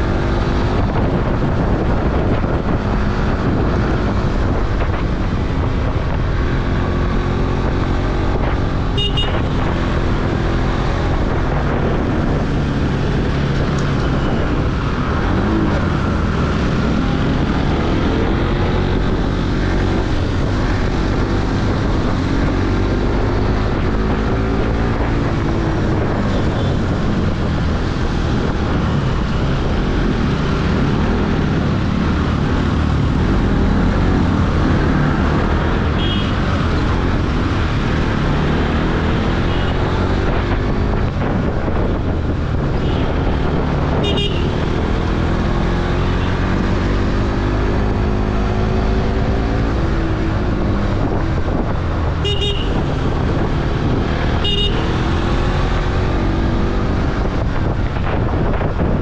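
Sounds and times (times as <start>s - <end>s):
motorcycle engine revving: 0.0s - 59.0s
wind rush on microphone: 0.0s - 59.0s
vehicle horn toots: 9.0s - 9.6s, 44.0s - 44.6s, 52.2s - 52.9s, 54.4s - 54.9s.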